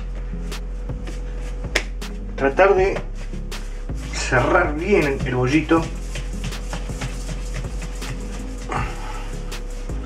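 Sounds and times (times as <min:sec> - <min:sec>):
background music: 0:00.0 - 0:10.0
hands rolling bread dough: 0:02.9 - 0:10.0.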